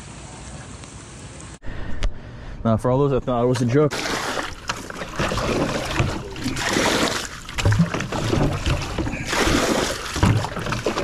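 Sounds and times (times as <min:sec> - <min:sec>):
legs wading through water: 0:03.5 - 0:11.0.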